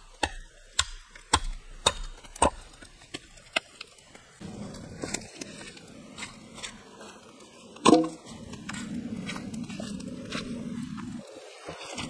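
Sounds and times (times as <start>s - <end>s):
hatchet chopping wood: 0.1s - 3.2s
low rustle with crackles: 2.6s - 12.0s.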